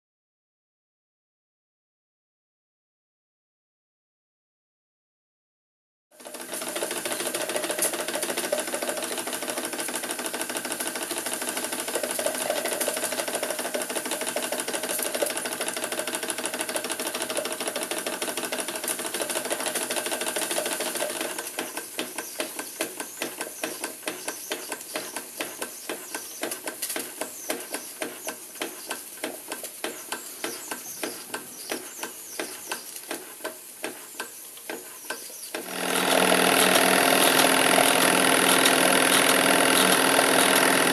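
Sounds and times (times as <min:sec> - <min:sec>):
steam engine hissing and chuffing: 0:06.4 - 0:34.1.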